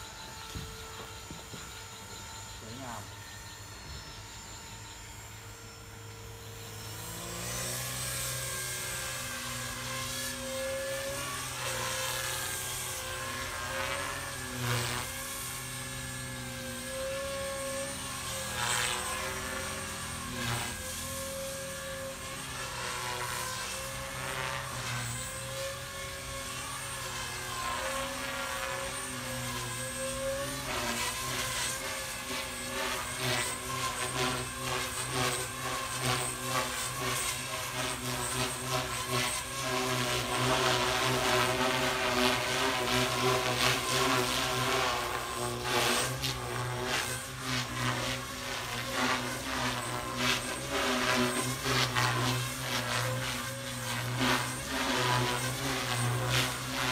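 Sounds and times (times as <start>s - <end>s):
model helicopter motor whine: 0.0s - 56.9s.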